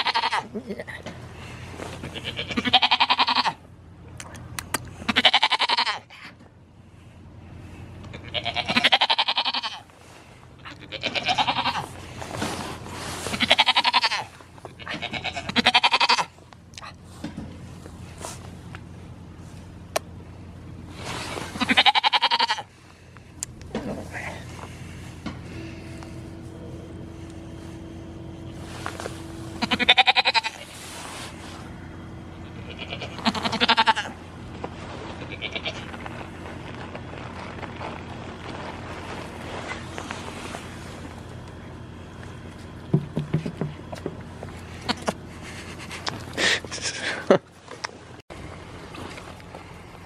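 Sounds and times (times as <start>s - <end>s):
goat bleating: 0.0s - 1.1s, 2.0s - 3.6s, 5.0s - 6.2s, 8.1s - 9.9s, 10.6s - 12.0s, 13.3s - 16.4s, 21.5s - 22.7s, 29.5s - 30.8s, 32.3s - 34.2s, 35.1s - 36.0s, 44.6s - 45.2s.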